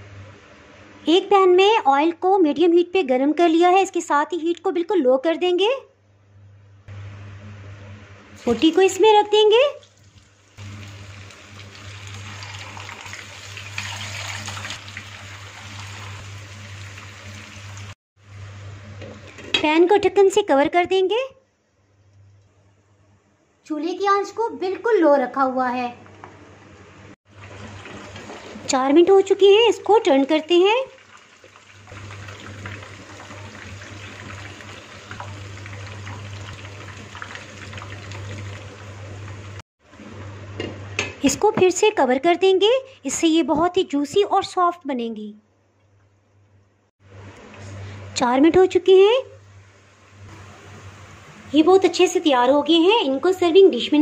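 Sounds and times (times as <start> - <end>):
meat sizzling in oil: 9.9 - 18.0, 30.6 - 39.6.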